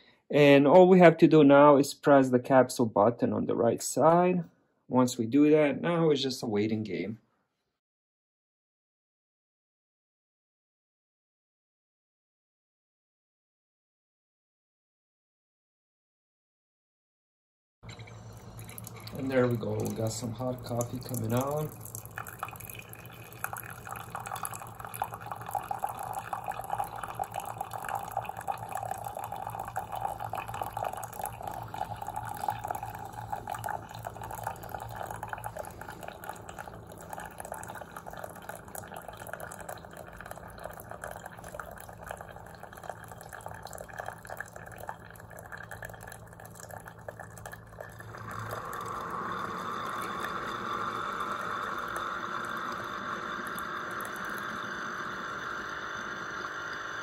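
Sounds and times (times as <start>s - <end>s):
coffee maker hissing: 17.8s - 57.0s
coffee trickling into mug: 17.8s - 57.0s
low machine hum: 17.8s - 57.0s.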